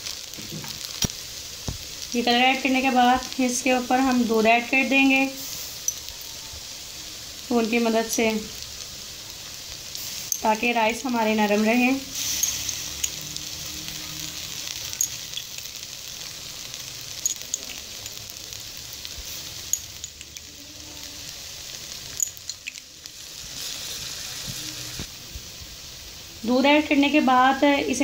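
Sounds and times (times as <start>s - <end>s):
rice sizzling in a pot: 0.0s - 28.0s
sharp pops: 0.4s - 1.9s.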